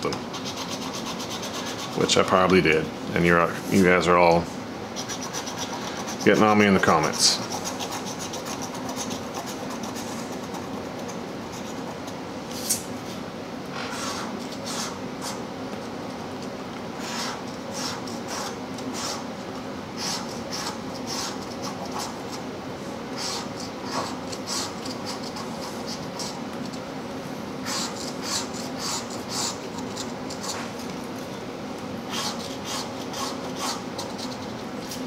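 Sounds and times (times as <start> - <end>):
coin scratching lottery ticket: 0.3 - 2.1, 5.0 - 6.5, 7.1 - 12.0, 20.0 - 22.4, 23.2 - 26.8, 27.6 - 30.7, 32.1 - 34.6.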